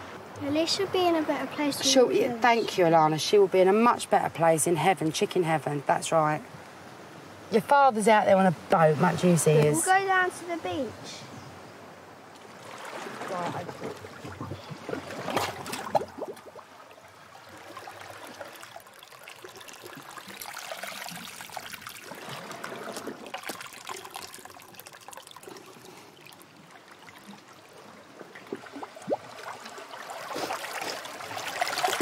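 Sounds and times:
sea water lapping over rocks: 12.4 - 32.0.

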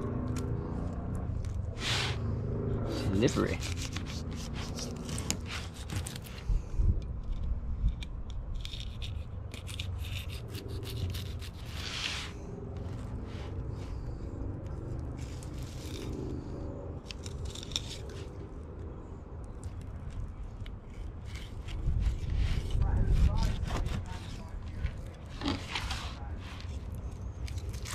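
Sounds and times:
knife slicing through fish: 3.0 - 6.4.

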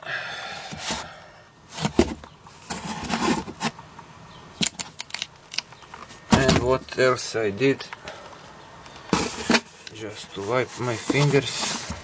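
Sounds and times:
rustling in a cardboard box: 1.7 - 3.8, 9.1 - 12.0.

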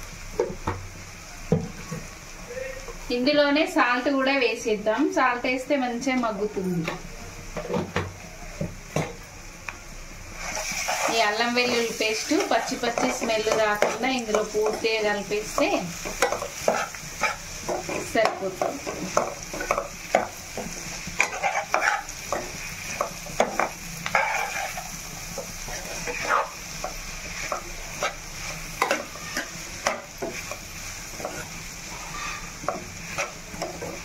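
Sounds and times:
vegetables sizzling in oil: 0.0 - 34.0
metal spatula scraping a pan: 10.4 - 18.1, 18.8 - 34.0.

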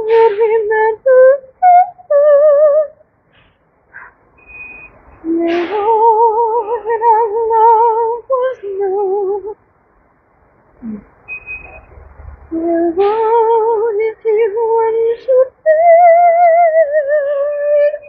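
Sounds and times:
person singing wordless notes: 0.0 - 2.9, 5.2 - 9.6, 10.8 - 11.1, 12.5 - 18.0.

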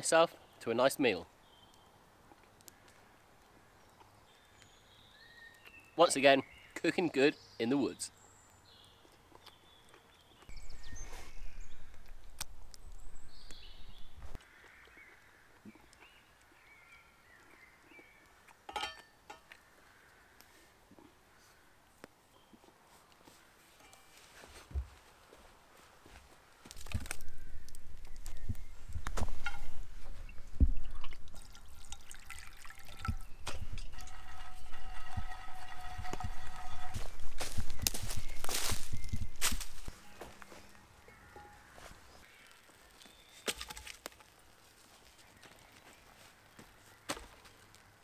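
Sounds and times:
birds chirping: 0.0 - 22.7, 26.5 - 43.5
water splashing in a skillet: 31.0 - 36.2.

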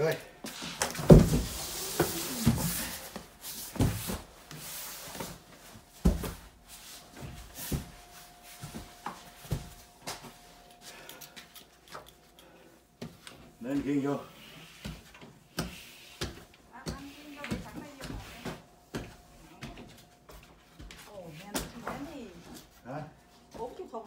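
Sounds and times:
knocks and thumps of handling things: 0.8 - 3.0, 3.6 - 4.3, 5.1 - 10.4.

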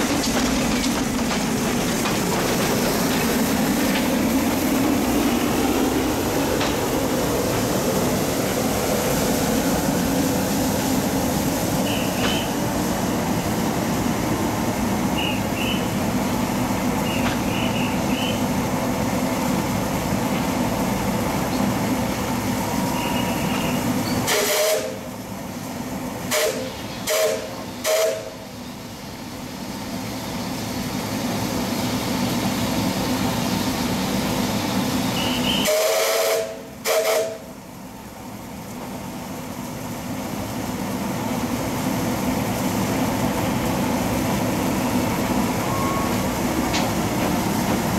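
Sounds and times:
steam hissing: 0.0 - 37.8
steam locomotive whistle: 11.8 - 12.6, 22.8 - 25.1, 26.3 - 28.4, 35.1 - 37.5, 45.6 - 46.2.

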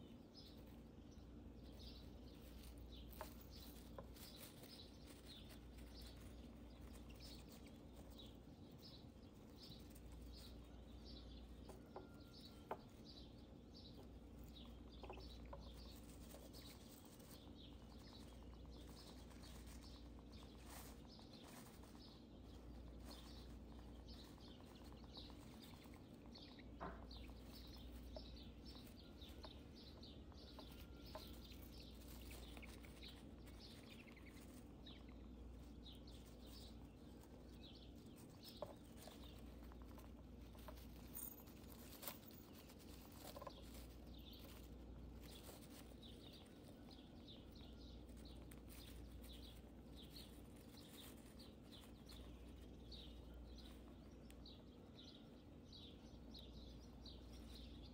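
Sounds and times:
hamster rustling in bedding: 16.0 - 25.9.

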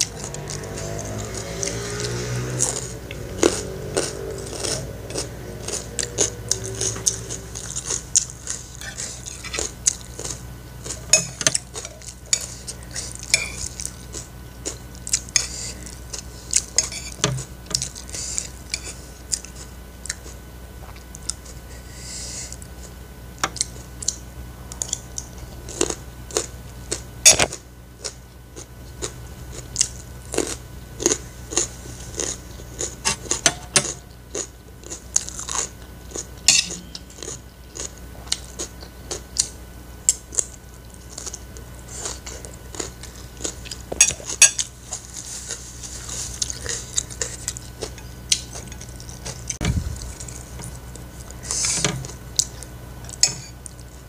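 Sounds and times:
chewing and crunching food: 0.0 - 54.0
metal spoon scraping ceramic plate: 13.3 - 13.6, 53.2 - 53.5.

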